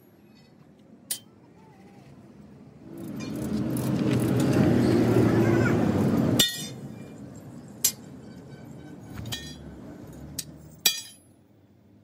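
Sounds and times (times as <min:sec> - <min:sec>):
sledgehammer striking steel: 0:10.4 - 0:11.3.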